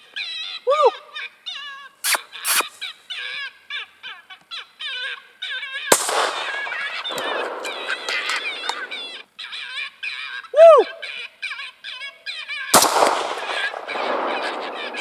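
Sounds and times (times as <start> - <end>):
rifle shot: 5.9 - 9.2, 12.8 - 15.0.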